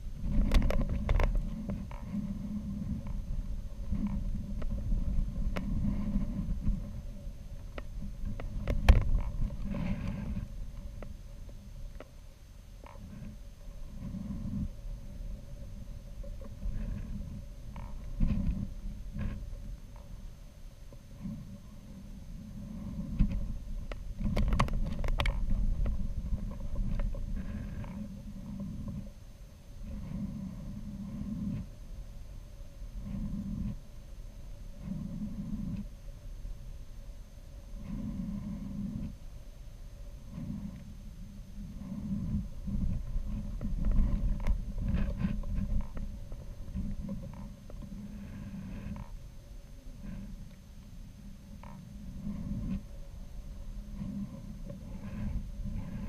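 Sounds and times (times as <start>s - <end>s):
wind buffeting microphone: 0.0s - 12.0s, 13.0s - 20.4s, 21.0s - 36.6s, 37.7s - 49.3s
sharp clicks and knocks: 23.2s - 27.2s.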